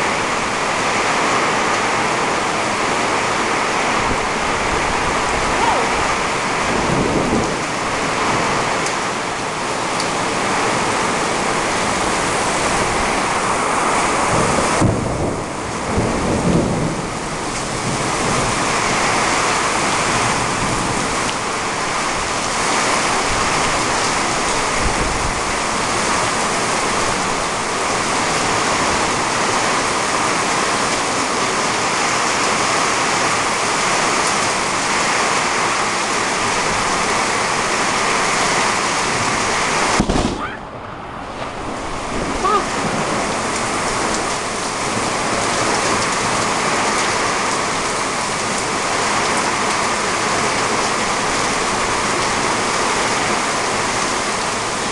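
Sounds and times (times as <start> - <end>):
heavy rain hissing: 0.0 - 54.9
thunder rumbling: 2.2 - 31.8, 36.2 - 48.3.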